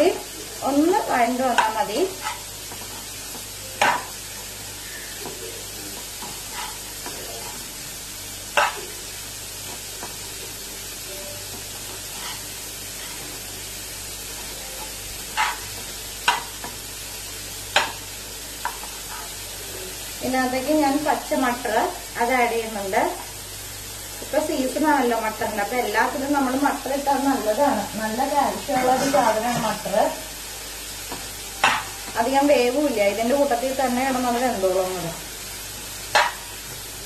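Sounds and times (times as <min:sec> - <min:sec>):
vegetables sizzling in a pan: 0:00.0 - 0:37.0
metal spoon scraping a pan: 0:01.5 - 0:03.1, 0:06.2 - 0:07.7, 0:08.5 - 0:08.9, 0:11.9 - 0:13.4, 0:14.8 - 0:16.8, 0:18.7 - 0:19.4, 0:36.1 - 0:36.4.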